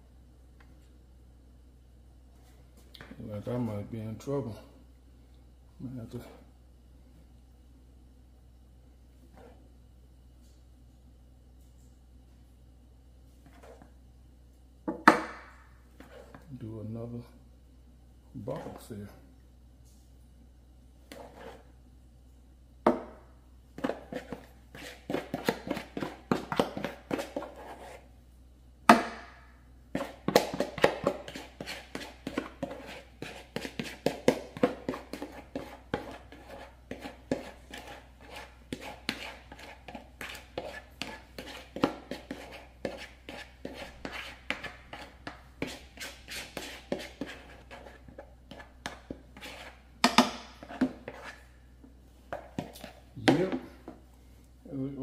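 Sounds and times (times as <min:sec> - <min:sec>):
spoon knocking and scraping bowl: 0:23.8 - 0:28.0, 0:30.0 - 0:51.5, 0:52.3 - 0:54.0.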